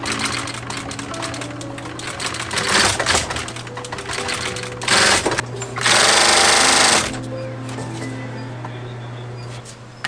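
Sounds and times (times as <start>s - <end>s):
leather sewing machine stitching: 0.0s - 7.2s
background music: 0.0s - 10.0s.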